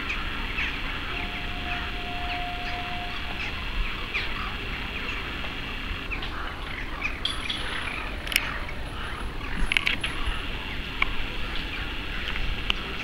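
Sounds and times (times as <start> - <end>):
steady tone: 0.1 - 11.3.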